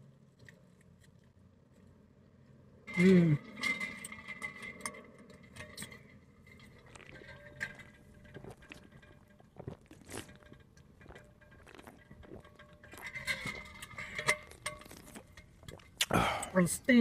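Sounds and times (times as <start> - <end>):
person gulping water: 6.8 - 16.6.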